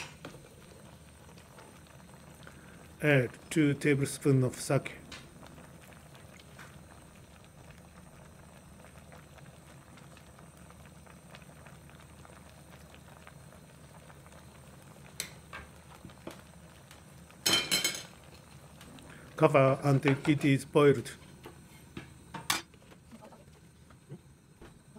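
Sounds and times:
broth bubbling in pot: 0.0s - 24.9s
small pops and ticks: 15.1s - 17.0s.

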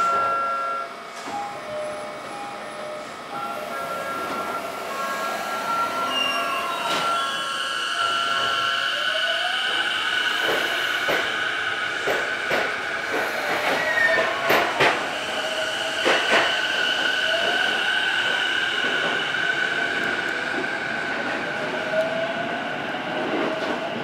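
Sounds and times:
wheels clacking on rails: 9.6s - 11.4s, 12.0s - 22.1s.

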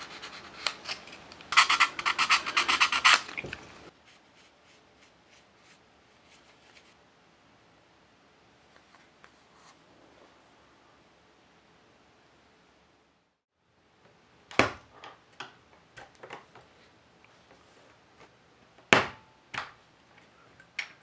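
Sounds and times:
sandpaper rubbing on wood: 1.5s - 3.4s.

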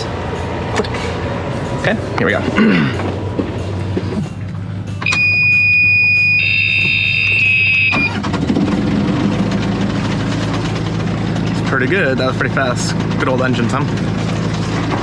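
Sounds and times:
diesel engine starting and running: 0.0s - 15.0s
engine alarm buzzer beeping: 5.0s - 8.3s.

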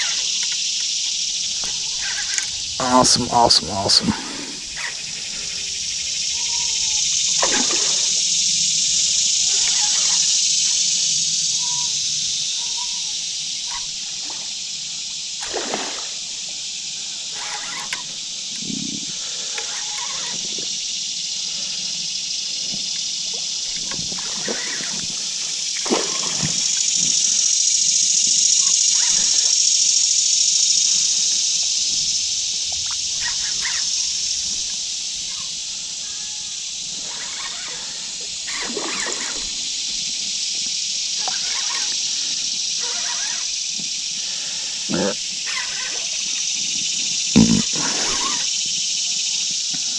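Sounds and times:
steady high-pitched hiss: 0.0s - 49.9s
water splashing and sloshing: 1.0s - 8.3s, 15.4s - 16.6s, 22.7s - 27.2s, 38.4s - 40.2s.

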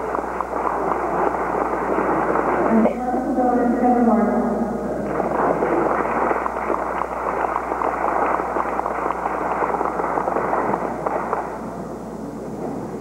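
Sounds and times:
audience applauding: 0.0s - 2.8s, 5.0s - 11.8s
person clapping close by: 5.1s - 11.6s.

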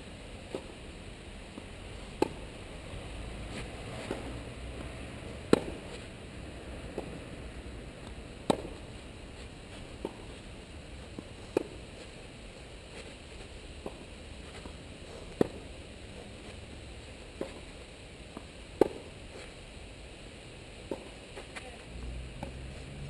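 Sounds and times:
racket hitting tennis ball: 0.4s - 0.8s, 1.5s - 6.1s, 6.8s - 7.3s, 8.0s - 12.2s, 12.9s - 19.5s, 20.8s - 21.7s.

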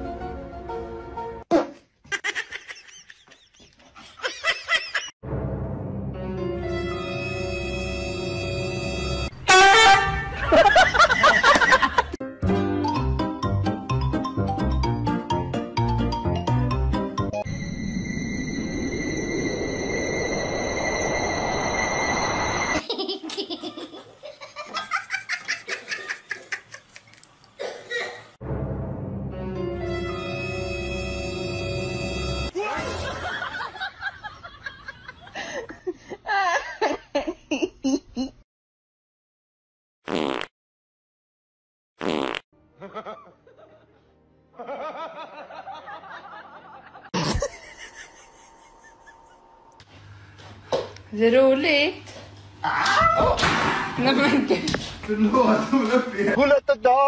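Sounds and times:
background music: 0.0s - 1.5s, 5.2s - 11.5s, 12.1s - 17.6s, 28.4s - 33.4s
high-pitched laughter: 2.1s - 5.1s, 47.0s - 49.6s.

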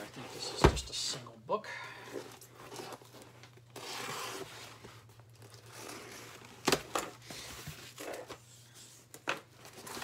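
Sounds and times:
cardboard rustling and scraping: 2.1s - 10.0s.

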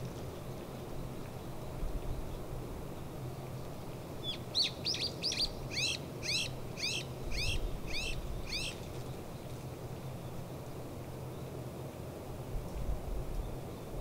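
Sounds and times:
songbird chirping: 4.2s - 10.4s.

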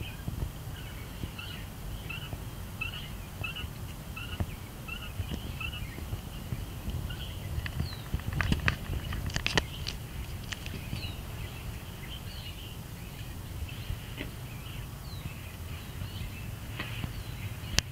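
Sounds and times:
low outdoor rumble: 0.0s - 17.9s
quail chirping: 0.0s - 17.9s
sharp clicks: 5.2s - 11.3s.

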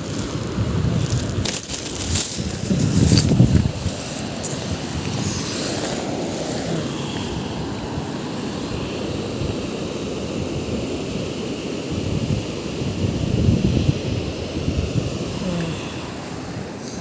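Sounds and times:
small waves washing on beach: 0.0s - 17.0s
wind rumbling on microphone: 0.0s - 17.0s.

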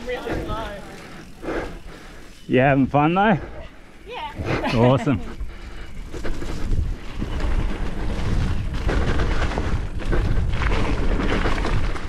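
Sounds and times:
tyre and trail noise: 0.0s - 12.0s
wind buffeting microphone: 4.3s - 12.0s
bike knocking over bumps: 6.3s - 12.0s.

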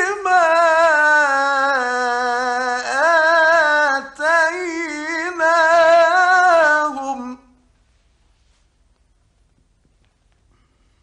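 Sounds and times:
man reciting melodically: 0.0s - 7.7s.

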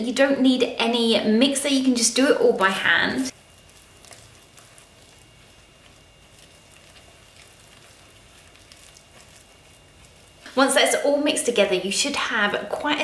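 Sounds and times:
spatula stirring thick batter: 1.6s - 13.0s.

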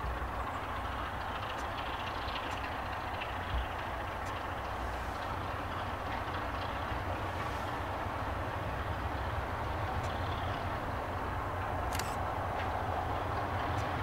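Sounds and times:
diesel locomotive engine rumbling: 0.0s - 14.0s.

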